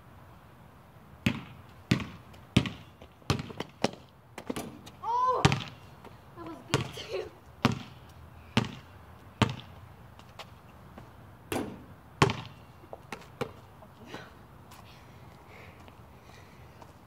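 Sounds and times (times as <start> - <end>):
basketball bouncing on concrete: 1.2 - 9.8, 11.0 - 13.6
ball striking hoop rim: 1.3 - 4.8, 11.5 - 12.6.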